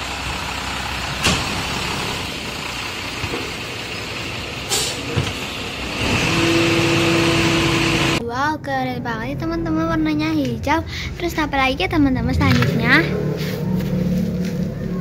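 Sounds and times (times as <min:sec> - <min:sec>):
garbage truck running: 0:00.0 - 0:08.2.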